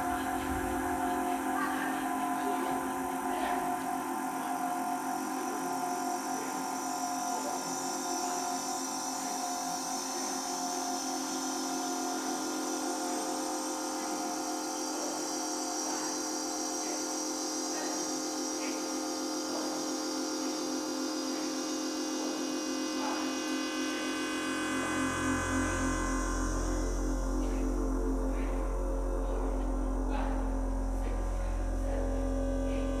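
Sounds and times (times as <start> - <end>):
high electronic whine: 0.0 - 33.0
layered electronic droning tones: 0.0 - 33.0.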